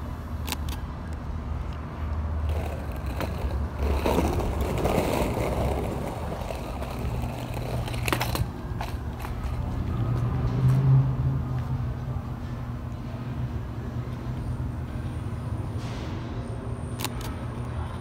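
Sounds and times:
skateboard wheels on rough asphalt: 2.4 - 10.0.

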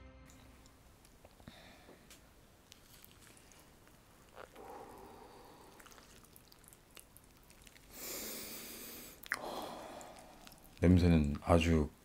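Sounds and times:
liquid dripping and squishing: 2.0 - 8.0, 9.1 - 11.6
person sniffing: 7.9 - 10.6.

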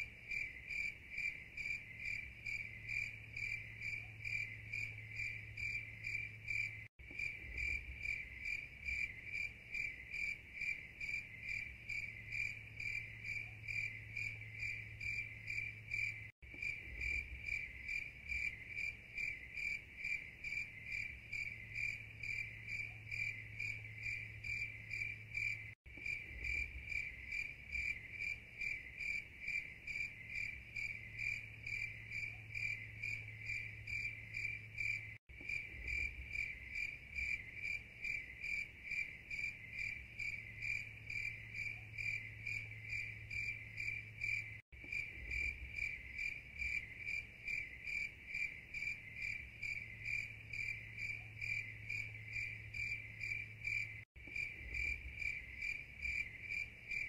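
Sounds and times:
crickets chirping: 0.0 - 57.0.

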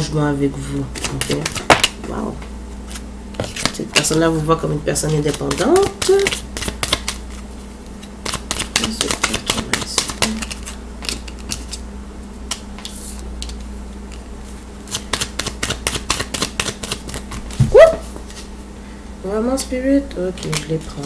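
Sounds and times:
low electrical hum: 0.0 - 21.0
cards being shuffled: 0.9 - 2.1, 5.0 - 11.8, 14.9 - 18.5.

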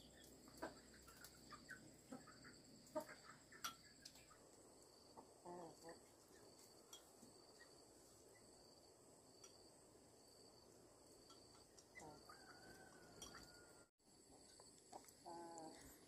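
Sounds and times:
chickens clucking: 0.0 - 8.5, 14.3 - 16.0.

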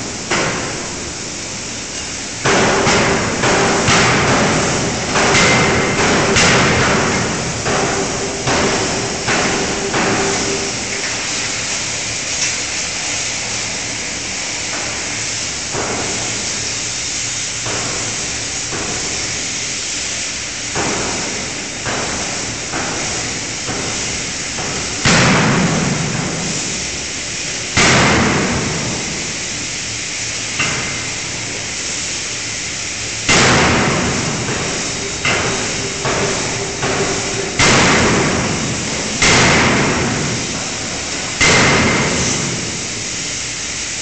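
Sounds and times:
forging hammer heavy blows: 2.5 - 10.8.

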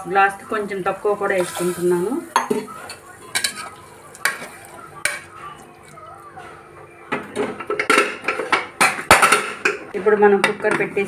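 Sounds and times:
ladle stirring curry: 1.4 - 8.8.

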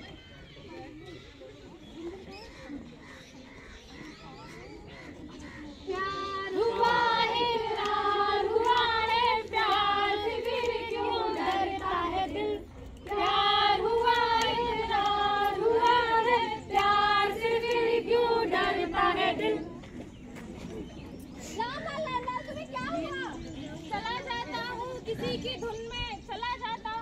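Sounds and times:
women singing together: 5.9 - 19.8.

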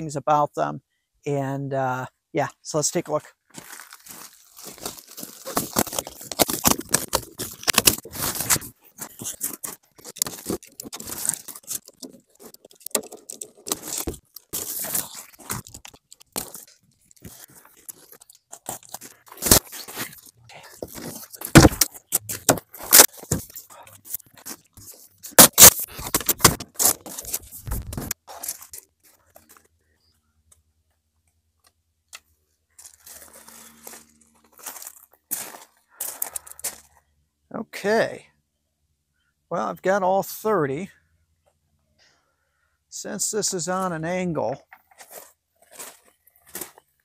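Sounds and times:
plastic wrap tearing and crinkling: 3.7 - 23.6, 24.4 - 28.8
cardboard scraping: 3.7 - 29.3
sharp cracks: 25.3 - 27.0.

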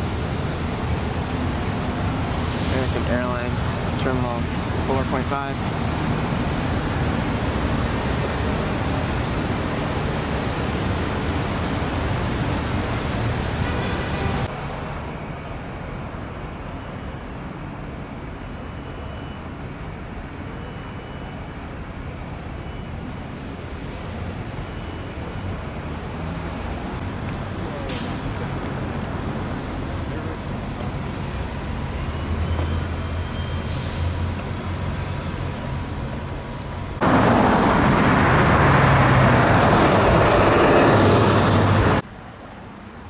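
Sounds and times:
passing cars traffic noise: 0.0 - 43.0.

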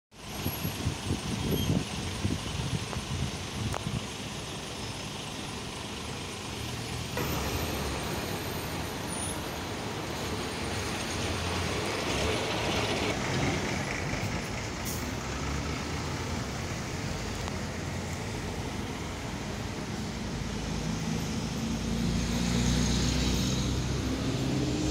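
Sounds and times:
traffic engines rumbling: 0.1 - 24.9
vehicle hiss: 14.0 - 24.9.

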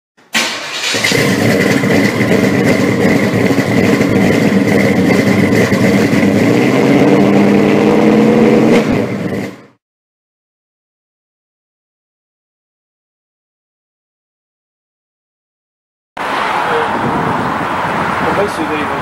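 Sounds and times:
car engine revving: 0.4 - 9.8, 16.2 - 19.0.

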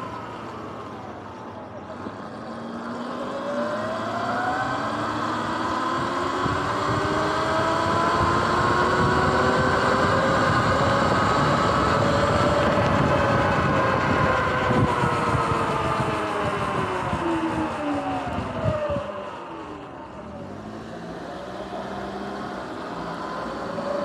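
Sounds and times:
electric motor whining: 3.1 - 24.0
wind on microphone: 4.4 - 19.8.

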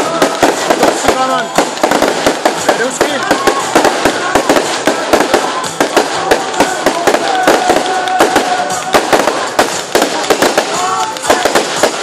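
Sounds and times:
continuous crackling hiss: 0.0 - 12.0
fireworks bangs and crackles: 0.0 - 12.0.

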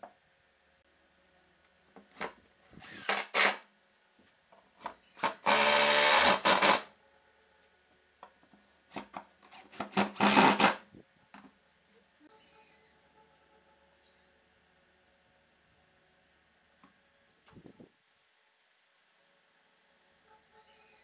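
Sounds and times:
tool rasping on wood: 5.2 - 6.8, 9.0 - 10.8.

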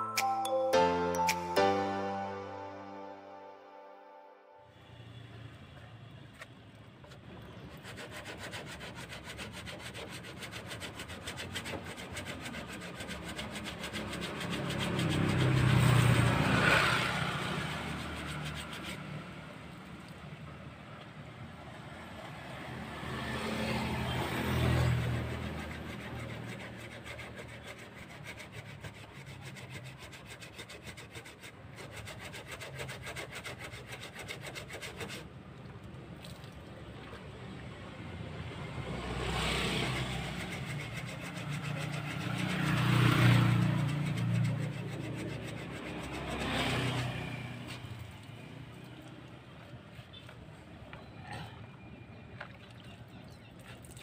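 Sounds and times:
wet sanding scrubbing: 7.6 - 19.5, 24.4 - 35.3, 39.6 - 48.1
passing road traffic: 10.6 - 30.0, 35.2 - 53.2.

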